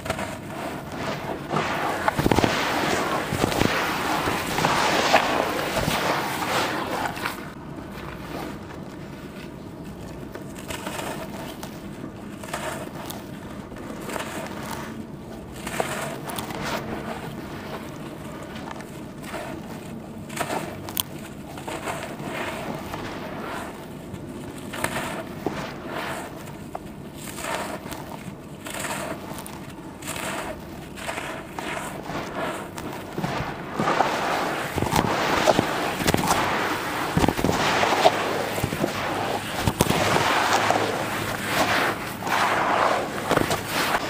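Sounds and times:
charcoal crunching and crumbling: 0.0s - 44.0s
charcoal cracking: 26.1s - 44.0s.

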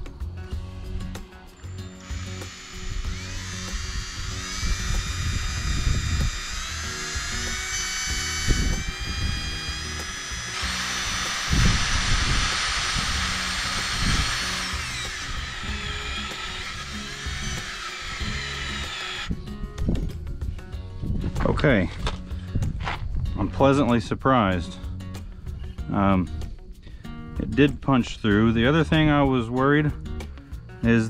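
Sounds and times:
cordless drill driving screw into metal: 2.0s - 19.3s.

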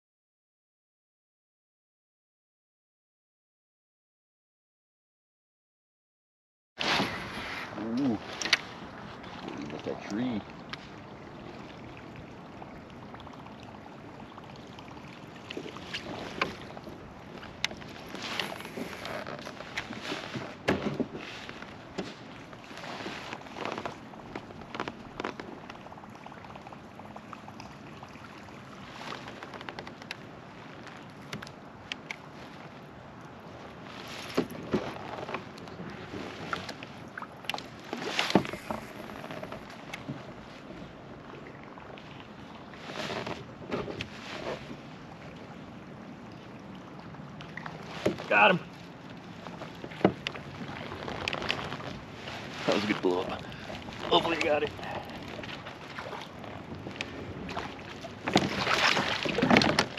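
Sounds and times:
water lapping against kayak: 6.8s - 59.9s.

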